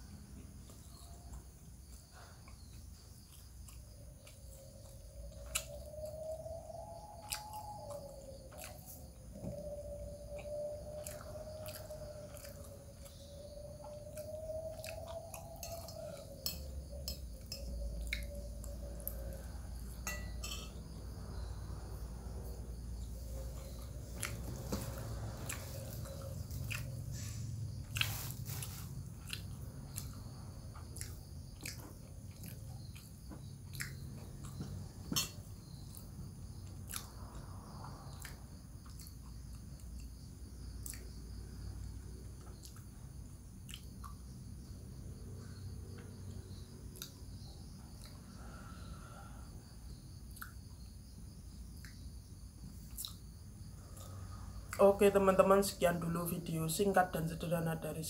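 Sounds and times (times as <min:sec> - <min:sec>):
person chewing and eating: 0:00.2 - 0:06.2, 0:07.2 - 0:21.5, 0:22.4 - 0:44.7
faint wavering tone: 0:04.6 - 0:27.6.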